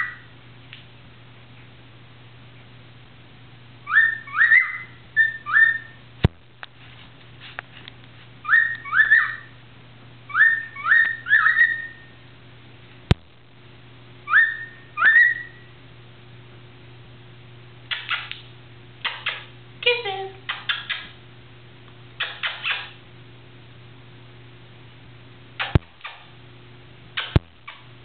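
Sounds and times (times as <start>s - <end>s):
steady low hum: 0.0s - 28.0s
cockatiel whistling: 3.8s - 6.0s, 8.4s - 9.5s, 10.3s - 12.1s, 14.3s - 15.7s
sharp clicks: 17.9s - 19.5s, 25.6s - 26.2s, 27.2s - 27.8s.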